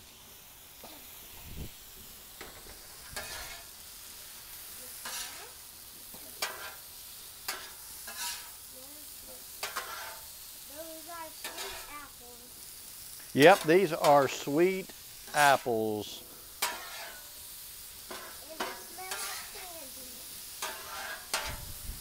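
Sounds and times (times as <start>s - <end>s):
food sizzling: 0.0s - 22.0s
metal spatula scraping griddle: 2.4s - 8.7s, 9.3s - 10.5s, 11.3s - 12.7s, 13.3s - 21.8s.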